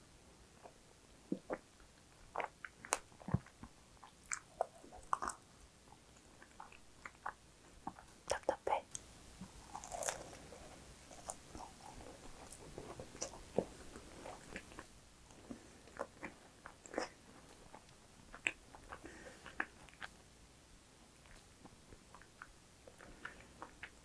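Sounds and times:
biting and chewing macaron: 0.6s - 5.5s, 9.4s - 20.2s.

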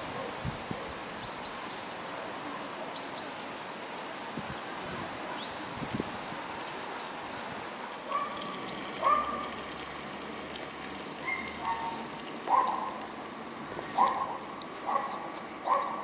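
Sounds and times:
dog barking: 8.1s - 8.4s, 9.0s - 9.4s, 11.3s - 13.0s, 14.0s - 16.0s.

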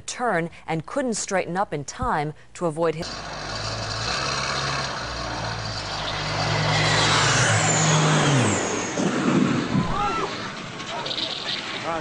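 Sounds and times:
plane engines droning: 3.0s - 12.0s
plane crash impact: 6.6s - 12.0s.

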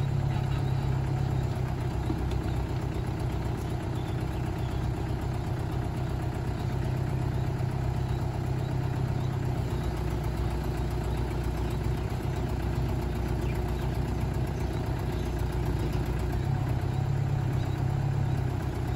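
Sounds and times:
truck engine idling: 0.0s - 18.9s.

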